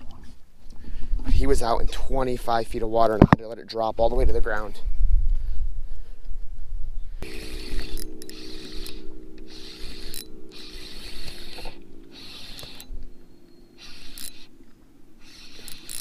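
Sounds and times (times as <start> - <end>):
fishing reel ratcheting and clicking: 7.2 - 12.9, 13.8 - 14.5, 15.2 - 16.0
electric motor whine: 7.2 - 16.0.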